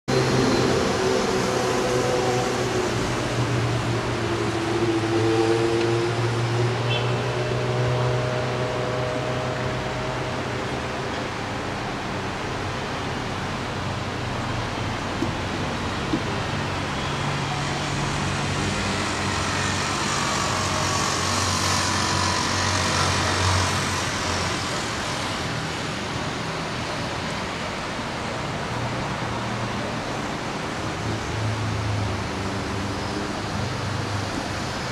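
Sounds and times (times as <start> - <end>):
vehicle passing by: 0.1 - 11.1
distant town traffic: 0.1 - 34.9.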